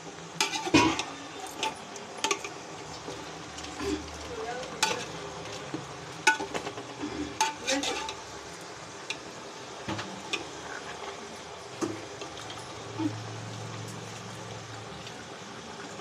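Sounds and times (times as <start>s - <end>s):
frying sizzle: 0.0s - 16.0s
metal spoon scraping metal pot: 0.4s - 2.5s, 7.3s - 8.2s.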